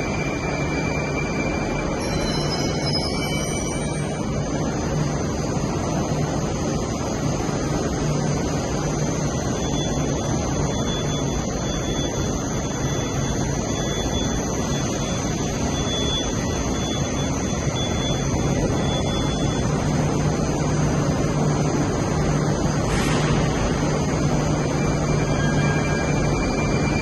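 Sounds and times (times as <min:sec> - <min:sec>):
faint high whine: 0:00.0 - 0:27.0
metro platform hum and rushing: 0:00.0 - 0:27.0
low drone: 0:22.5 - 0:27.0.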